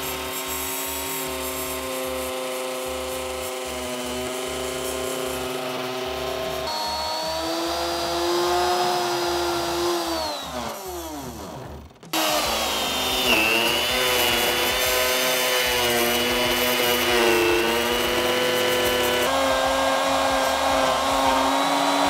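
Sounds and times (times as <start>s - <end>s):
router motor whining: 0.0s - 22.0s.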